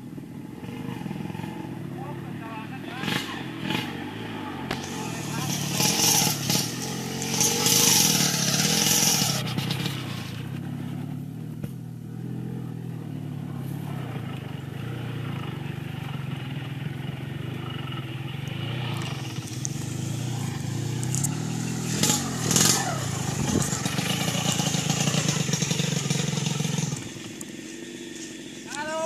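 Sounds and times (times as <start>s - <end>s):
small motorcycle engine running: 0.0s - 29.0s
loud rushing hiss: 4.7s - 10.6s, 18.9s - 29.0s.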